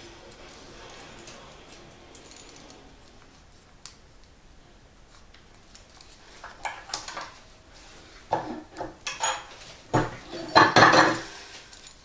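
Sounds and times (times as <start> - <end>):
tools clinking on worktable: 8.4 - 12.0.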